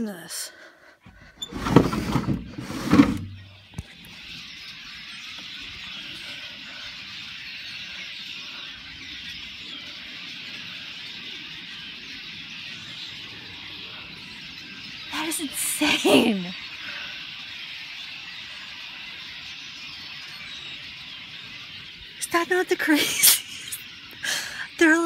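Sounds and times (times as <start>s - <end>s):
flock of birds chattering: 0.0s - 25.0s.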